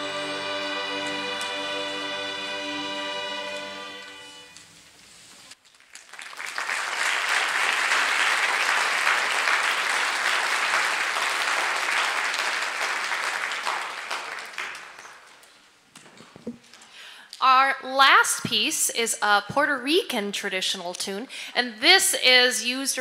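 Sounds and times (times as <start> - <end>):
audience applauding: 5.6 - 15.7.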